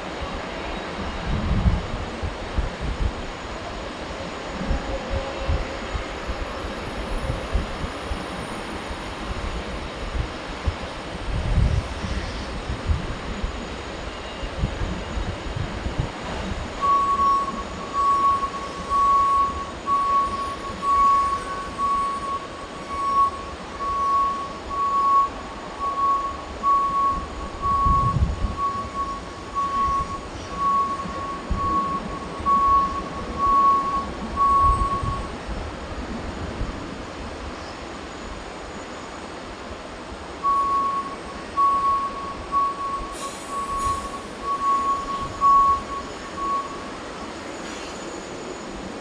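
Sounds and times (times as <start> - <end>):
low rumbling wind: 0.0 - 47.5
distant jet engine whine: 0.0 - 49.0
repeating single-pitched beep: 16.8 - 35.3, 40.4 - 46.9.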